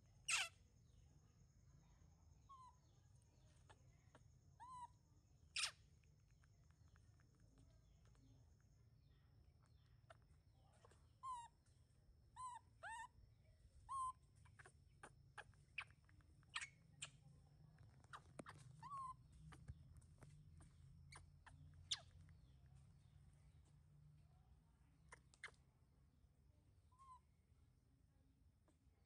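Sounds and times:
baby monkey squeaky calls: 0.2 - 0.6, 2.5 - 2.9, 3.6 - 5.9, 9.6 - 11.7, 12.3 - 13.2, 13.8 - 17.2, 17.9 - 19.8, 20.6 - 22.4, 25.1 - 25.6, 26.9 - 27.3
faint sharp chirps: 1.7 - 24.0.

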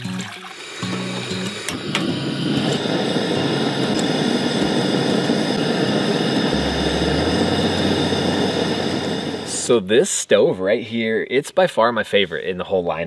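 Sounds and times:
water boiling and bubbling: 0.0 - 9.7
gas burner rushing: 0.4 - 9.9.

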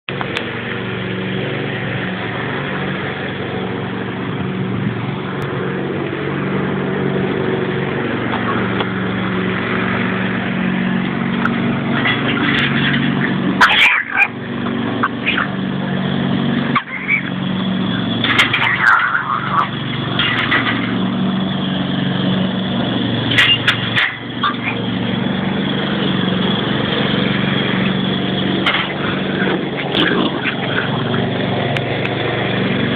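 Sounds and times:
dog barking: 13.6 - 14.4.

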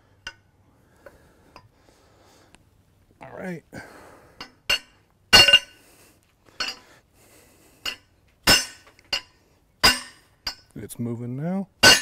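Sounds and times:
hammer clanking on steel bar: 4.4 - 5.8, 7.9 - 10.7, 11.8 - 12.0.

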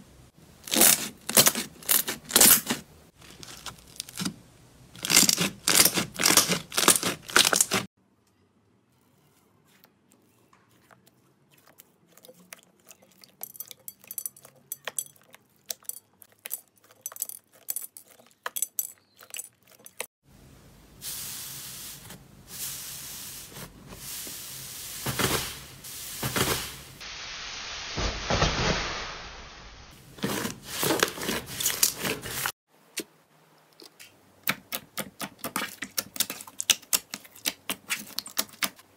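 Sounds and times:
slime squishing and crackling: 0.6 - 4.4, 5.0 - 7.9, 34.5 - 38.8.

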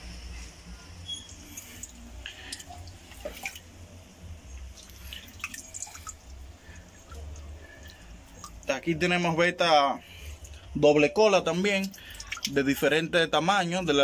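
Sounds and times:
water dripping from hand: 1.3 - 3.7, 4.6 - 8.7, 11.6 - 12.8.

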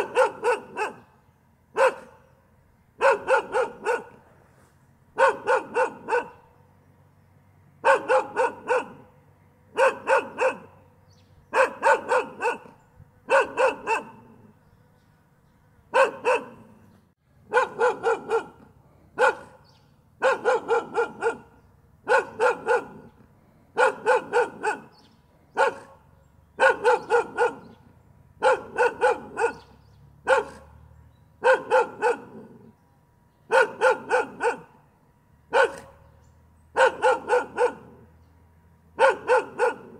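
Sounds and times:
dog barking: 0.0 - 2.3, 3.0 - 4.2, 5.2 - 6.5, 7.8 - 9.1, 9.7 - 10.8, 11.5 - 14.5, 15.9 - 16.8, 17.5 - 27.8, 28.4 - 30.8, 31.4 - 32.7, 33.5 - 34.8, 35.5 - 36.1, 36.7 - 38.1, 39.0 - 39.9.

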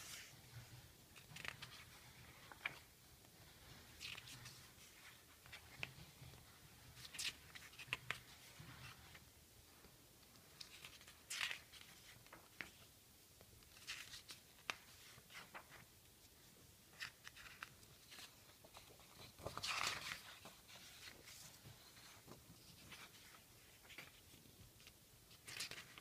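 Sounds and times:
magazine pages turning: 1.1 - 2.9, 3.9 - 6.0, 7.0 - 9.2, 10.6 - 12.8, 13.6 - 15.9, 16.9 - 26.0.

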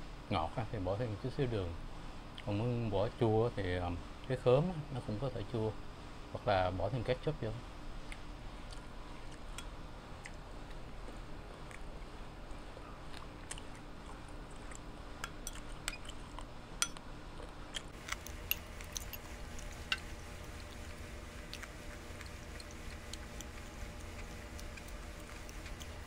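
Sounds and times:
faint chewing: 8.0 - 26.0.

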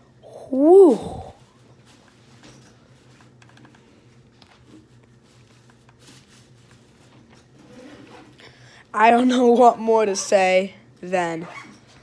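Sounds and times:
faint clicks and rustles: 1.4 - 8.4.

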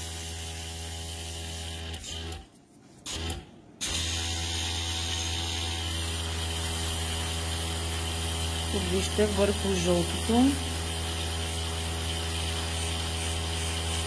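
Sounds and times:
airbrush compressor motor humming: 3.1 - 14.0.

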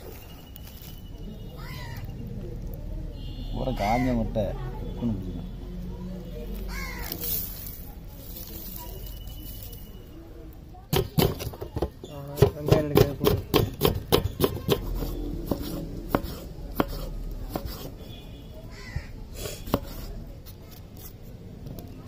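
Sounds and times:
knife tapping wooden chopping block: 10.9 - 17.9, 19.7 - 20.0.

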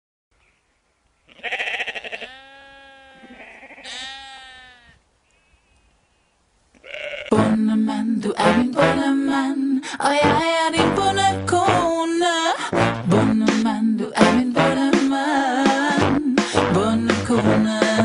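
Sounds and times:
sheep bleating: 1.3 - 5.0, 6.8 - 7.3
music: 7.3 - 18.0.

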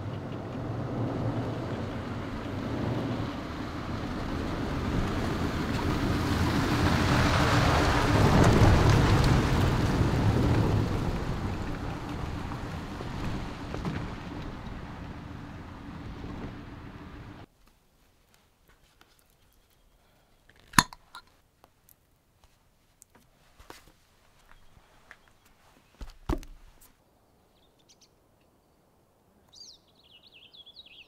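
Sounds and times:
truck engine hum: 0.0 - 17.5
tyres on gravel: 2.6 - 22.0.

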